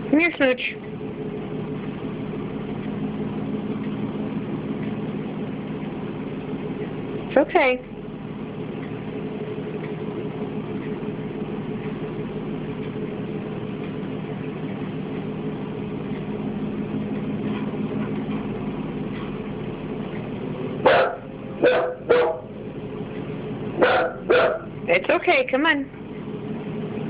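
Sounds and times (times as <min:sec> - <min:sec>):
low steady drone: 0:15.5 - 0:25.0
dog barking: 0:20.8 - 0:22.5, 0:23.8 - 0:24.7.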